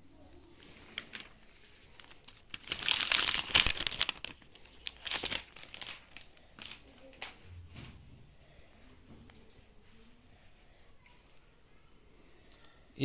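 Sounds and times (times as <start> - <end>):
plastic film crinkling: 0.5 - 7.4.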